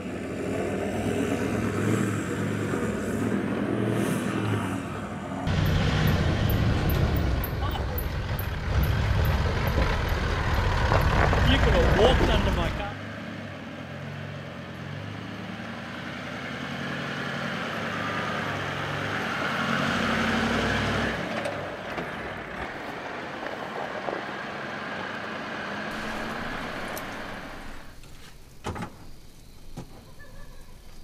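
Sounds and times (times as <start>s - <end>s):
vehicle engine driving past: 0.0s - 28.0s.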